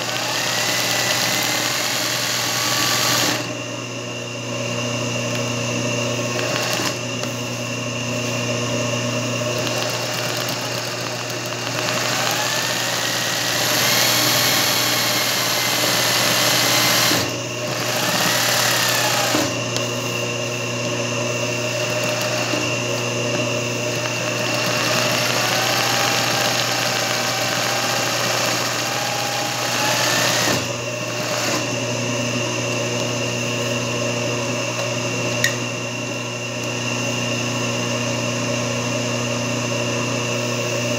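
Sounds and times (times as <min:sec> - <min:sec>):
sewing machine stitching: 0:00.0 - 0:03.5, 0:06.3 - 0:07.0, 0:09.5 - 0:19.5, 0:21.7 - 0:22.7, 0:23.9 - 0:31.7
motor hum: 0:00.0 - 0:40.9.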